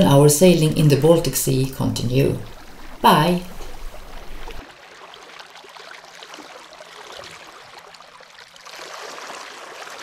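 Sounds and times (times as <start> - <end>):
water splashing around feet: 2.4 - 10.0.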